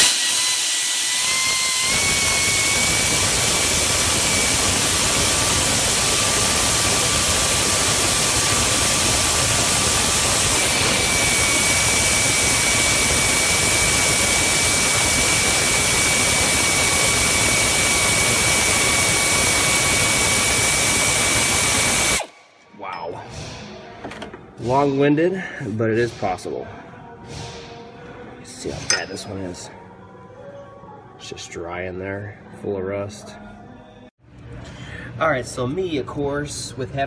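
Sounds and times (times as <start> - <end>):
air ratchet hissing and whining: 0.0 - 22.4.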